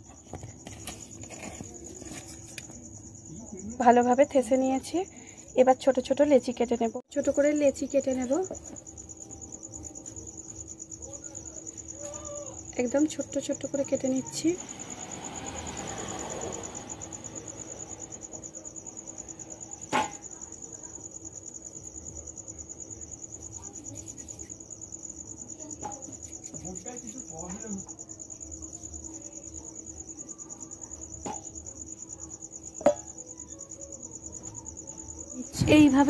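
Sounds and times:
high insect trill: 0.0 - 36.0
taps on steel plate: 32.8 - 33.1.

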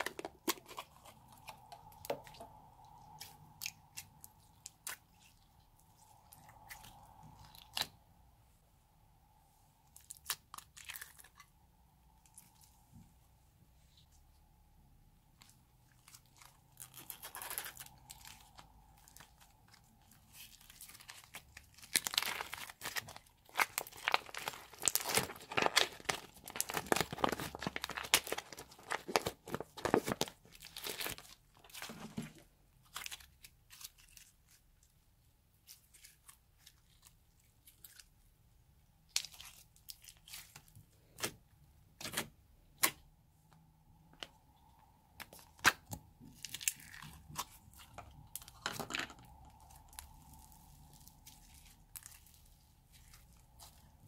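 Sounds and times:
plastic pouch crinkling: 15.4 - 34.6
slime crackling and popping: 15.9 - 31.9, 45.2 - 54.0.

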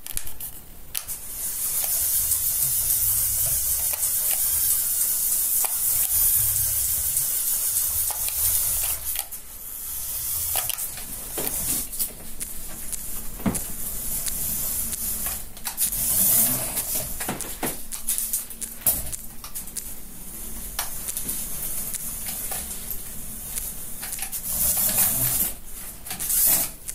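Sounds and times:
toy car motor whirring: 1.2 - 12.0, 12.9 - 19.2, 23.6 - 26.9.

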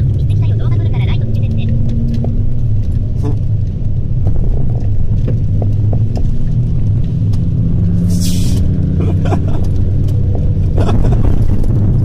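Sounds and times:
car engine and road noise: 0.0 - 12.0
brief hiss: 8.1 - 8.6.

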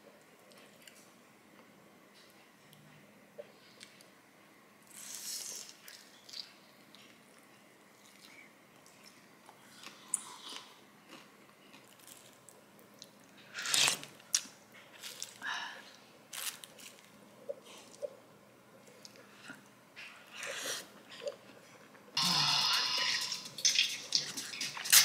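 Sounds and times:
chewing crispy food: 4.9 - 15.4.

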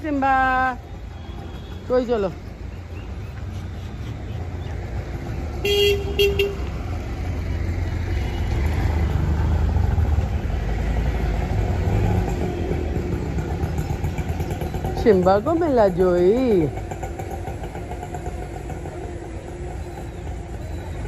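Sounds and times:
engine rumble: 0.0 - 21.0
vehicle horn honks: 5.6 - 6.7.

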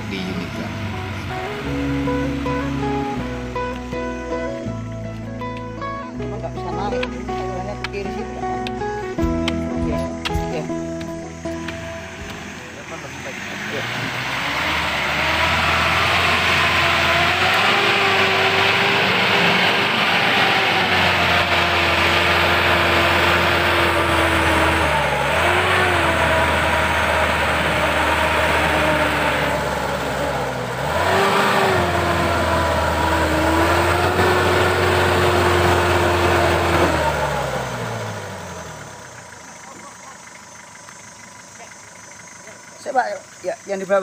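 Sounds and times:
engine revving high: 0.0 - 5.7, 7.8 - 39.8.

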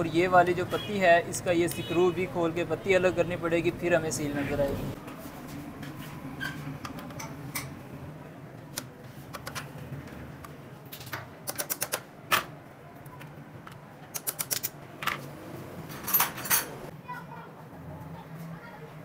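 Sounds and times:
metallic clicks from hand tools: 11.4 - 12.0, 14.1 - 14.8.

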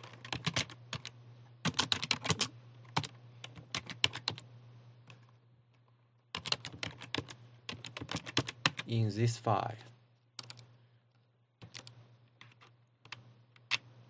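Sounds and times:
keyboard typing: 0.0 - 4.4, 6.3 - 8.9, 10.4 - 10.7, 11.6 - 13.9
steady low hum: 0.0 - 14.0.

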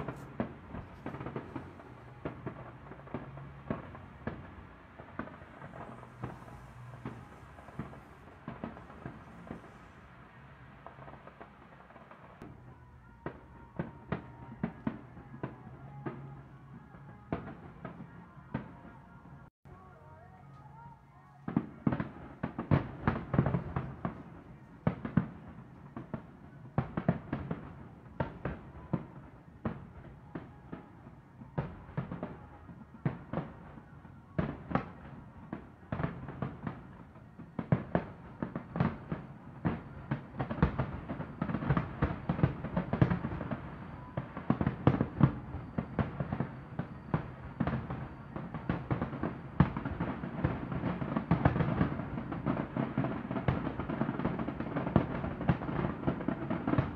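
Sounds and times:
fireworks bursting: 0.0 - 19.5, 21.4 - 56.9.

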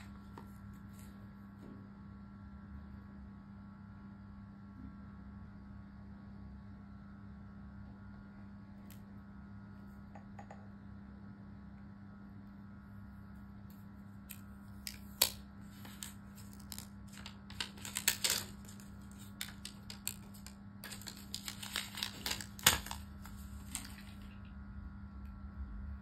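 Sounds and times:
paper and cardboard crinkling: 14.9 - 24.4.

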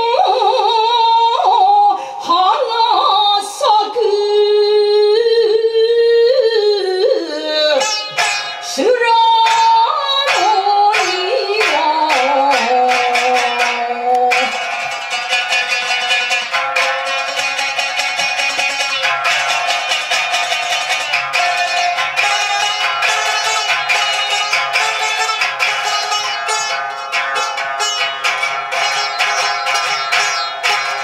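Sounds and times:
woman chanting: 0.0 - 8.0, 8.6 - 14.7
plucked lute notes: 7.4 - 31.0.

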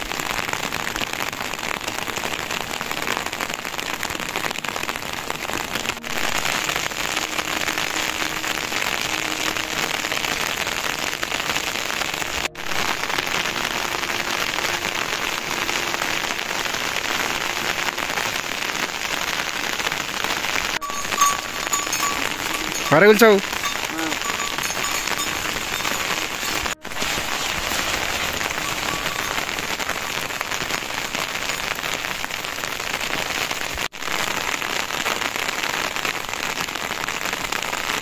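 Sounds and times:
heavy rain falling: 0.0 - 38.0.

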